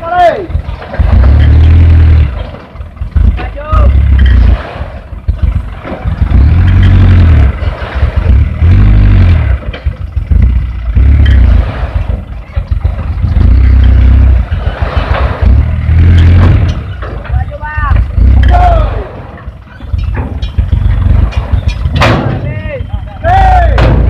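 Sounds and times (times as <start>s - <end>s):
diesel truck engine revving: 0.3s - 24.0s
soil dumping from truck bed: 14.3s - 17.3s.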